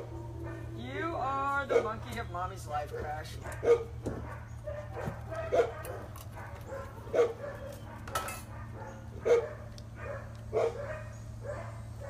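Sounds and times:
dog barking: 0:01.7 - 0:02.0, 0:02.9 - 0:12.0.

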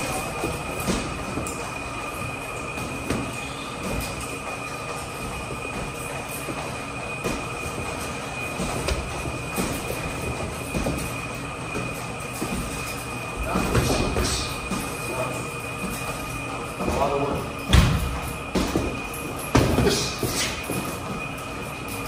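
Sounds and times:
footwork on ring canvas: 0:00.0 - 0:22.0
two-pitched high whine: 0:00.0 - 0:22.0
boxing gloves thudding: 0:17.7 - 0:20.8.

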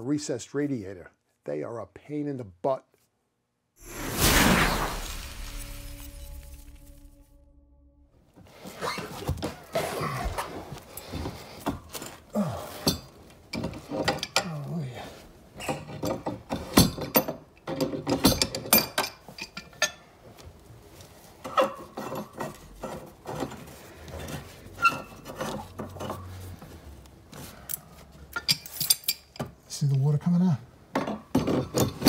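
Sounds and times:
pipe wrenches clanking on metal: 0:11.0 - 0:14.7, 0:15.6 - 0:20.1, 0:21.4 - 0:26.5, 0:27.7 - 0:29.6, 0:30.9 - 0:32.0
metal squeaks: 0:24.7 - 0:26.5.

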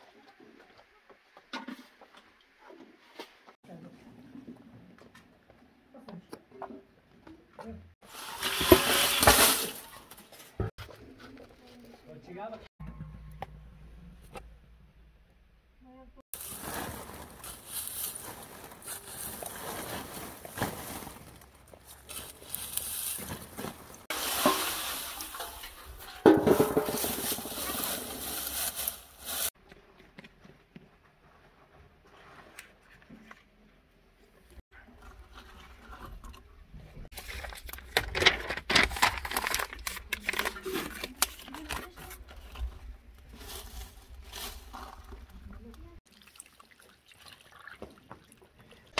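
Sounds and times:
dry leaves and straw rustling: 0:08.1 - 0:10.5, 0:16.4 - 0:29.6, 0:37.1 - 0:45.8.

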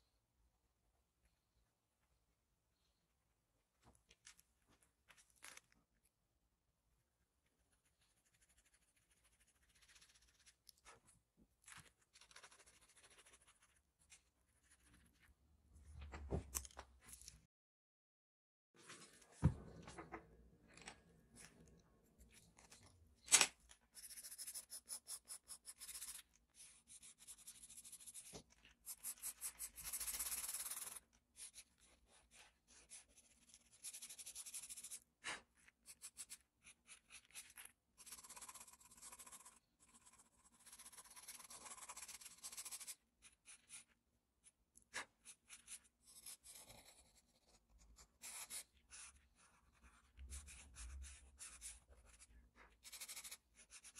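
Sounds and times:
pencil scratching on paper: 0:07.6 - 0:15.3, 0:23.9 - 0:53.9.

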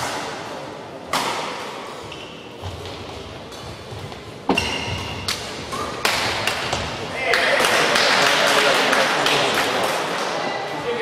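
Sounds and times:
shoe squeak: 0:04.5 - 0:05.2.

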